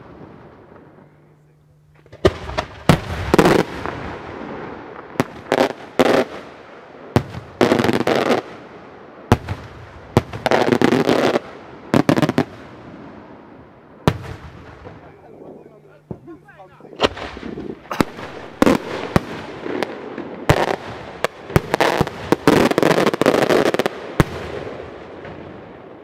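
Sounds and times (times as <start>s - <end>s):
firework bangs: 1.9s - 13.4s, 14.0s - 26.0s
rattling firework volleys: 14.0s - 25.4s.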